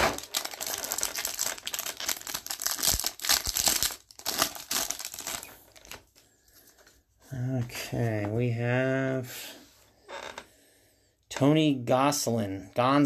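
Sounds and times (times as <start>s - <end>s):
foil wrapper crinkling and tearing: 0.0s - 6.2s.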